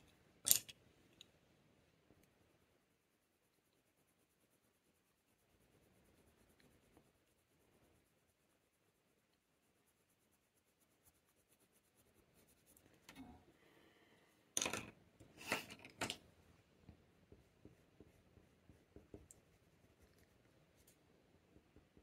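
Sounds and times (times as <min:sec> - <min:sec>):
pencil strokes on paper: 0:02.6 - 0:13.1, 0:17.0 - 0:22.0.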